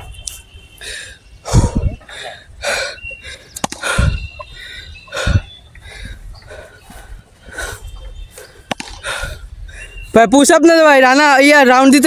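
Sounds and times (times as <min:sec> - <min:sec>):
wind rumbling on microphone: 0:00.0 - 0:10.2
person breathing hard: 0:00.8 - 0:10.0.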